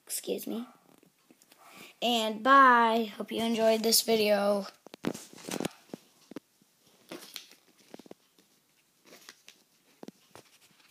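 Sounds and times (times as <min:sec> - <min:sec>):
phone handling rustles: 0:04.8 - 0:06.4, 0:07.0 - 0:10.9.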